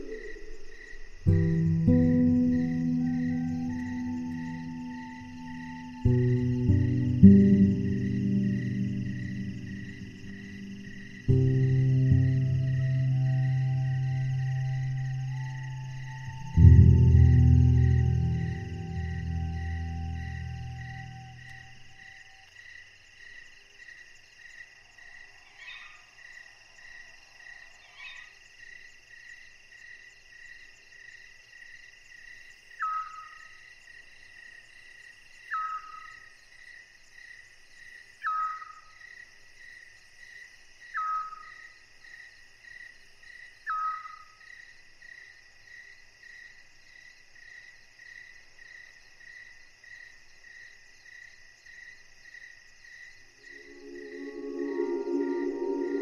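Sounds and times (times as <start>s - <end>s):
crickets and insects calling: 0.0s - 56.0s
high pulsing peep: 1.3s - 22.0s, 53.4s - 56.0s.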